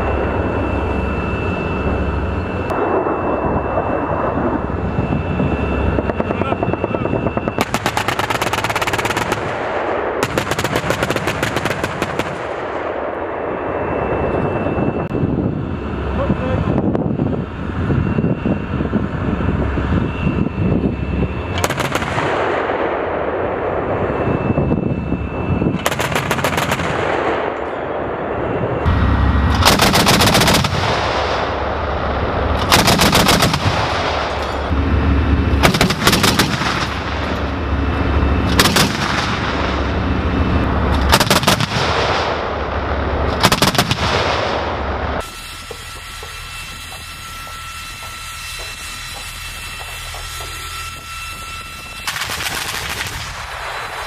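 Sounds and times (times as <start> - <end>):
autocannon rapid fire bursts: 7.5 - 12.8, 21.6 - 23.0, 25.8 - 27.4, 29.5 - 31.5, 32.6 - 34.3, 35.6 - 37.2, 38.5 - 39.8, 41.0 - 42.5, 43.3 - 44.6, 52.0 - 54.0.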